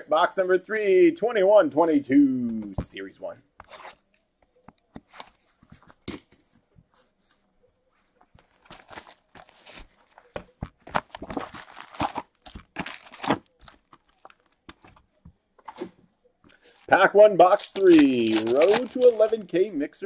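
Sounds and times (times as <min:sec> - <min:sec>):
plastic wrap crinkling: 0:08.4 - 0:15.0, 0:16.5 - 0:19.5
box cutter slitting plastic wrap: 0:11.3 - 0:13.5, 0:17.5 - 0:19.3.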